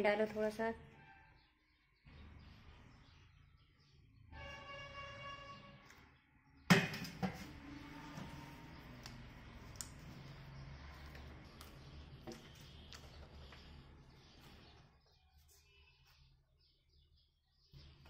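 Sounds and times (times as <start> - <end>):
hands kneading dough: 8.3 - 15.7.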